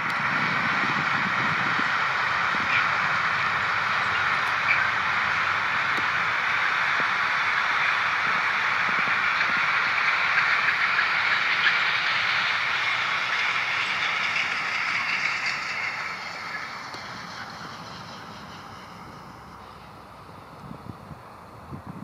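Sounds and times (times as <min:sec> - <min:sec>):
train wheels rushing on rails: 0:00.0 - 0:22.0.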